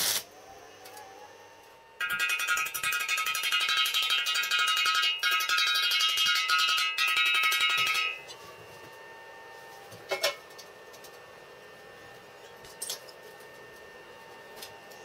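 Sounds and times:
steel plates clinking on table: 0:02.0 - 0:08.2
chipping hammer tapping steel: 0:02.0 - 0:08.4.

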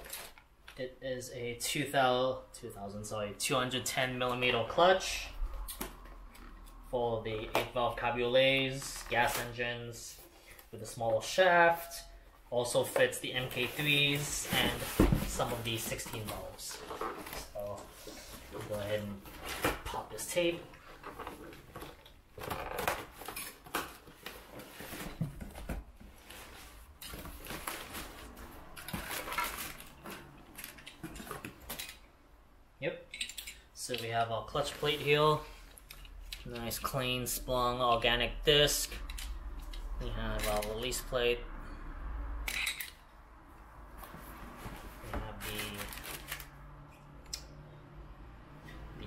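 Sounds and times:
packing paper and cardboard rustling: 0:12.8 - 0:31.8, 0:44.1 - 0:46.6
metal parts clinking: 0:33.1 - 0:33.7, 0:42.5 - 0:43.0.

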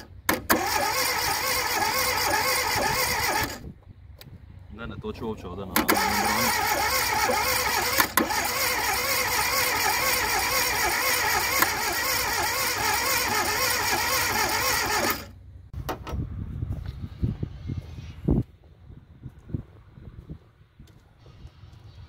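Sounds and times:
car engine revving: 0:05.8 - 0:15.3.

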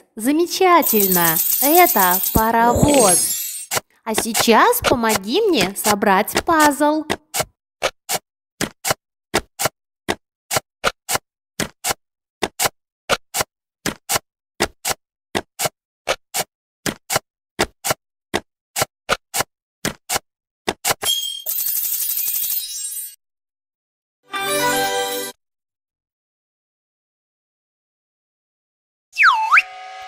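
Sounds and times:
puzzle pieces clicking into place: 0:00.8 - 0:06.8.

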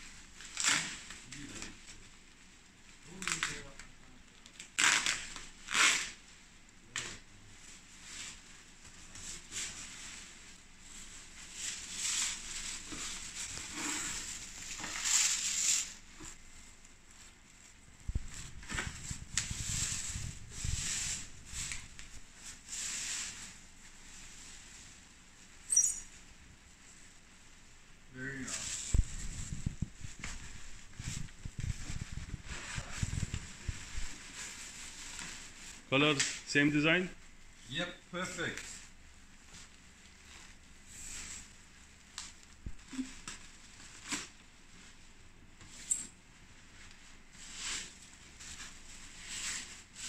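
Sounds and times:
packing sheets rustling and crinkling: 0:07.0 - 0:25.1, 0:28.4 - 0:37.0, 0:46.5 - 0:50.0
plastic wrap crinkling: 0:28.3 - 0:36.4.

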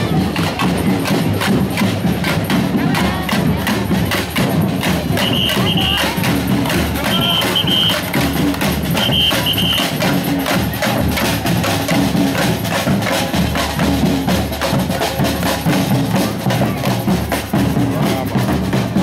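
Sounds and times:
bass and snare drums playing: 0:00.0 - 0:19.0
short high whistle: 0:05.2 - 0:06.0, 0:07.1 - 0:08.0, 0:09.0 - 0:09.9.

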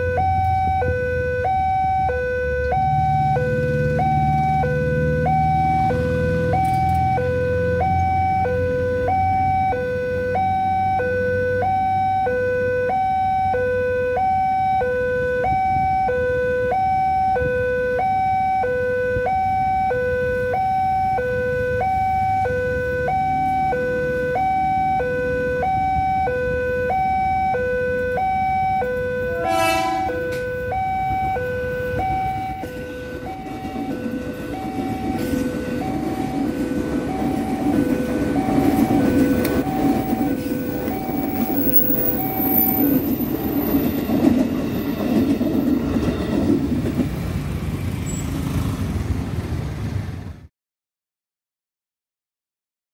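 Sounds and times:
level crossing two-tone alarm: 0:00.0 - 0:45.4
electric train rumble: 0:27.1 - 0:50.4
train horn toot: 0:29.2 - 0:30.7.

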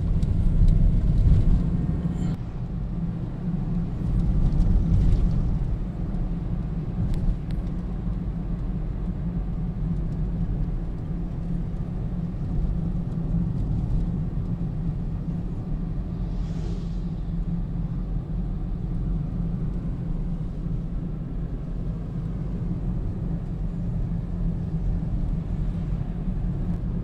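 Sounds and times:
car engine rumble: 0:00.0 - 0:27.0.

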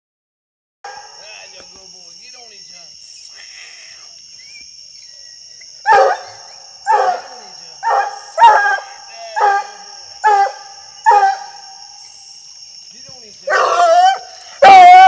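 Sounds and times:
dog barking: 0:00.9 - 0:01.2, 0:05.9 - 0:11.6, 0:13.5 - 0:15.0.

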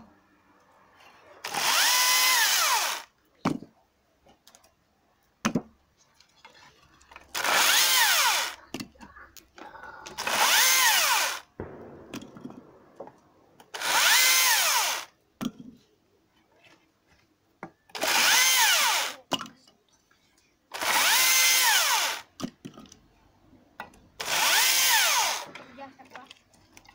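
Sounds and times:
cordless chainsaw whining in bursts: 0:01.4 - 0:03.1, 0:07.3 - 0:08.6, 0:10.2 - 0:11.5, 0:13.7 - 0:15.1, 0:17.9 - 0:19.2, 0:20.7 - 0:22.3, 0:24.2 - 0:25.5.

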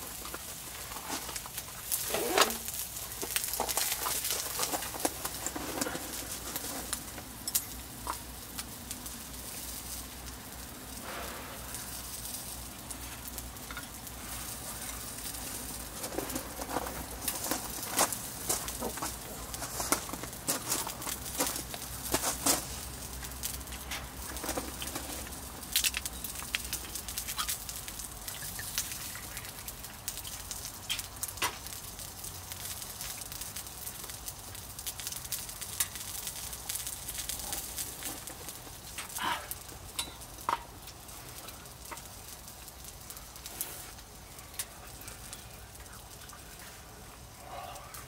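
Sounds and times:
pork sizzling on grill: 0:00.0 - 0:48.0.

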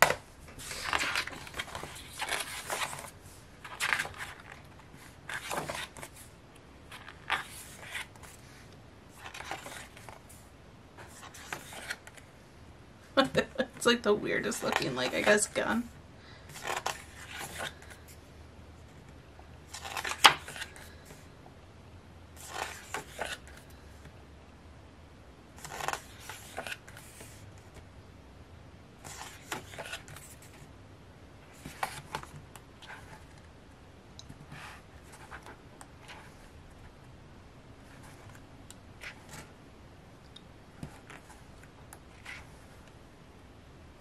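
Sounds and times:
pages being turned: 0:00.0 - 0:06.3, 0:06.9 - 0:10.4, 0:11.0 - 0:12.3, 0:16.5 - 0:18.1, 0:19.7 - 0:21.2, 0:22.4 - 0:23.6, 0:25.6 - 0:27.8, 0:29.0 - 0:30.6, 0:31.5 - 0:33.5.

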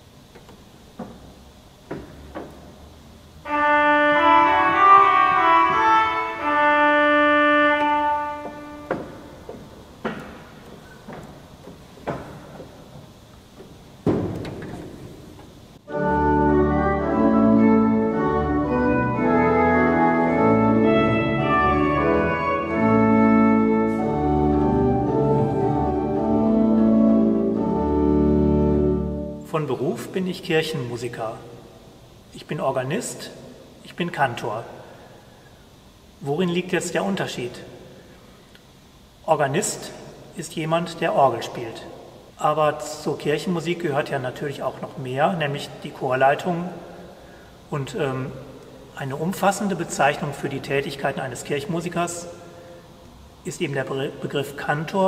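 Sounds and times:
pipe organ chords: 0:00.9 - 0:32.2.

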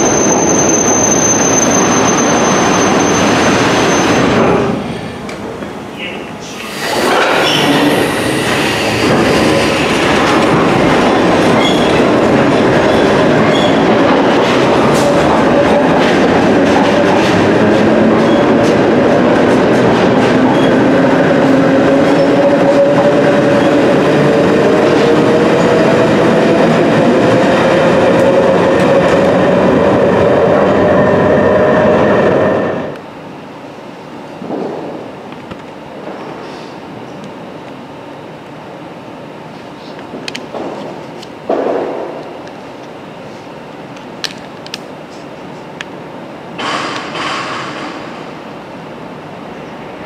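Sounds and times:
train wheels clattering on rail: 0:06.8 - 0:29.5, 0:34.4 - 0:37.3, 0:40.0 - 0:42.9, 0:46.6 - 0:48.4.

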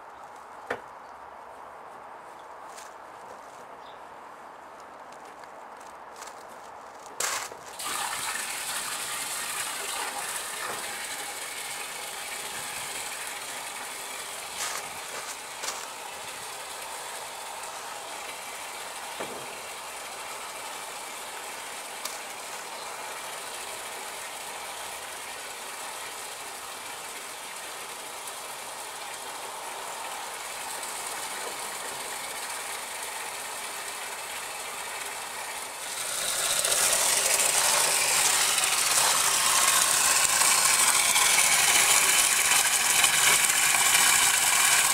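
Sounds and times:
hose water running into water: 0:07.2 - 0:44.9
outboard motor running: 0:29.6 - 0:44.9.

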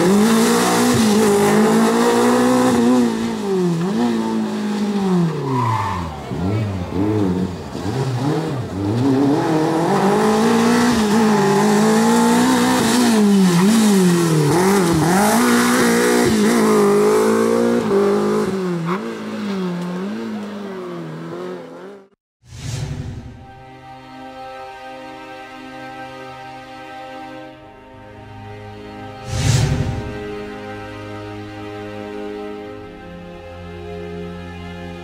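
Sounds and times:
rally car engine revving: 0:00.0 - 0:22.2.

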